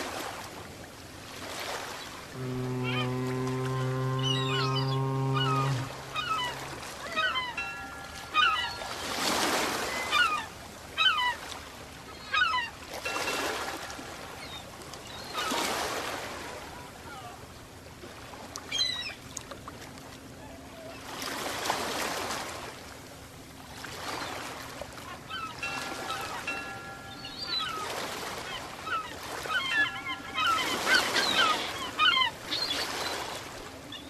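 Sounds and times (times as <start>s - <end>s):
waves splashing against seawall: 0.0s - 12.0s, 12.6s - 17.4s, 20.5s - 22.8s, 23.7s - 33.9s
birds chirping: 2.0s - 11.4s, 25.1s - 34.0s.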